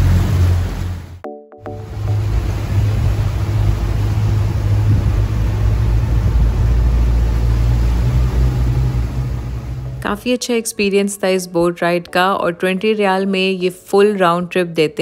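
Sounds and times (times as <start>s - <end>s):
water rushing along hull: 0.0s - 10.1s
motorboat engine running: 0.0s - 10.3s.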